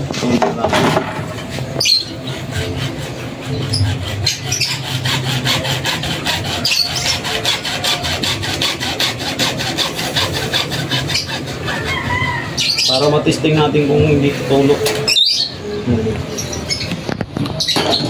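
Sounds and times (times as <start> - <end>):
hand saw cutting plastic pipe: 0.0 - 11.8.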